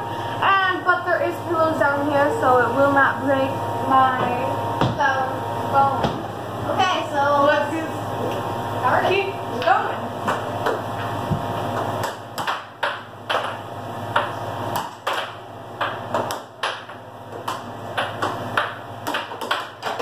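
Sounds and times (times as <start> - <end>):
table blower hum: 0.0 - 12.2
air hockey puck clacking: 12.0 - 20.0.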